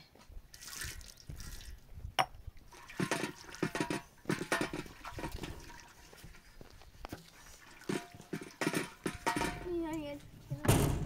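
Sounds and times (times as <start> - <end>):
water splashing into metal tray: 2.7 - 6.5, 7.6 - 9.6.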